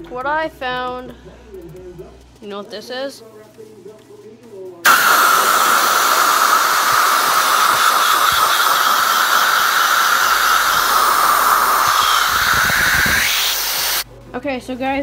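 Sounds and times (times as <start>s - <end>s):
gas hissing under pressure: 4.9s - 14.1s.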